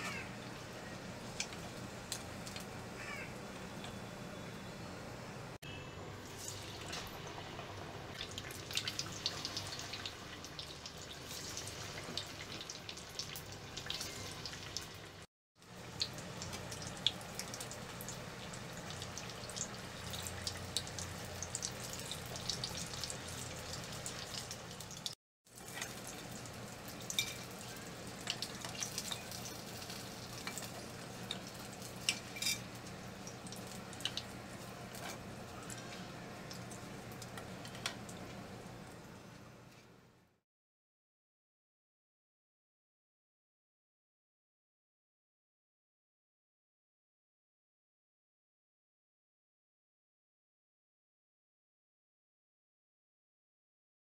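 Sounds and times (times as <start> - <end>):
food deep-frying in oil: 0.1 - 2.8, 5.7 - 39.4
oil crackling and popping: 1.3 - 2.7, 6.3 - 15.0, 15.8 - 38.4.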